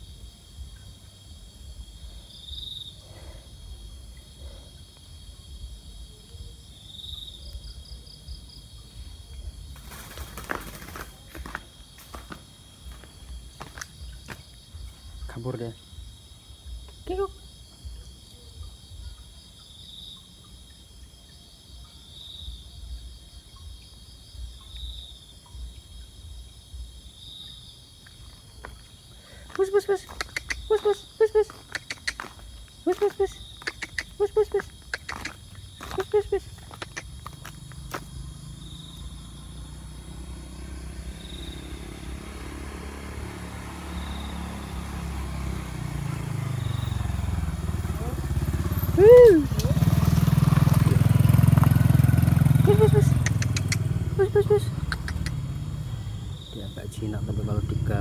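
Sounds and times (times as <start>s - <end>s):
crickets trilling: 0.0s - 58.0s
loud buzzing insect call: 9.7s - 14.6s, 27.1s - 58.0s
motorcycle engine rumbling: 28.4s - 58.0s.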